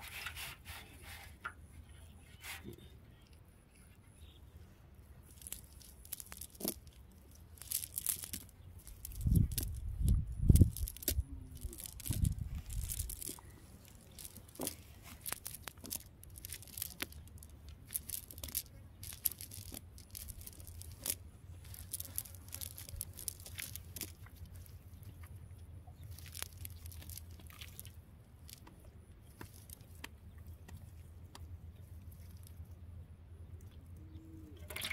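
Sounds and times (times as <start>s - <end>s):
steady low rumble: 4.2s - 29.4s
fishing net rustling: 5.2s - 24.9s, 26.0s - 28.6s.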